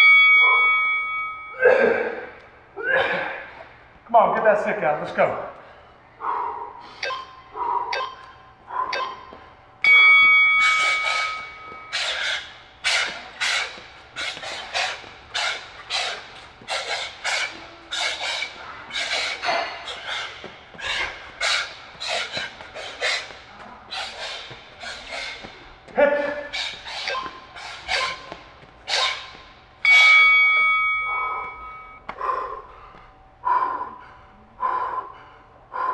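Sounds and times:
heavy panting: 5.6 - 30.2, 31.1 - 35.9
electronic timer beep: 7.0 - 7.4.

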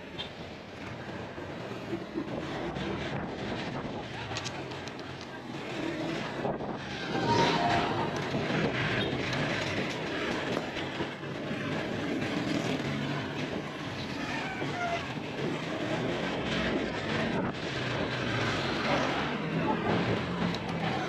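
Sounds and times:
road and wind noise: 0.0 - 21.0.

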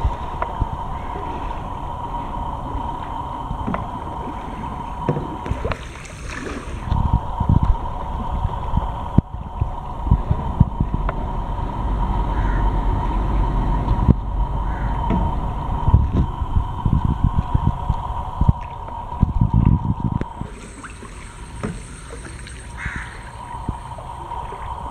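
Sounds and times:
faint steady whine: 0.0 - 24.9
low rumble on microphone: 0.0 - 24.9
paddle splashing in water: 2.8 - 8.2, 20.2 - 24.9.

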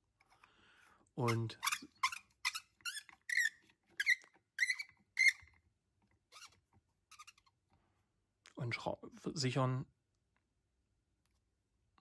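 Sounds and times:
plastic squeaking chirps: 1.2 - 5.7, 6.3 - 7.6.

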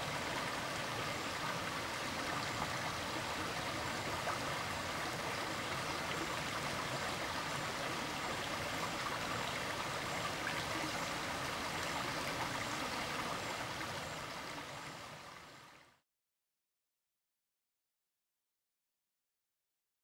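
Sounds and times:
stream water rushing: 0.0 - 15.8.

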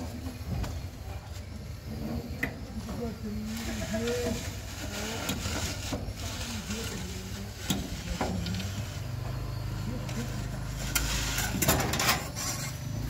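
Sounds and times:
wire scraping on a pipe: 3.6 - 9.0, 10.2 - 13.0.

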